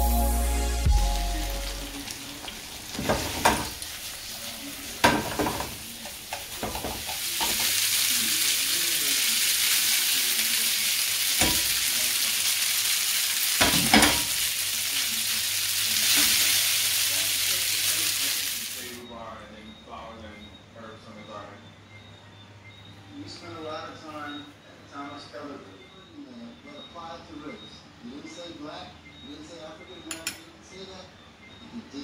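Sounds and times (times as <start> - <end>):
noodles sizzling in a pan: 0.4 - 19.0
utensils knocking against pan: 3.0 - 3.8, 5.0 - 7.7, 11.4 - 11.8, 13.6 - 14.4.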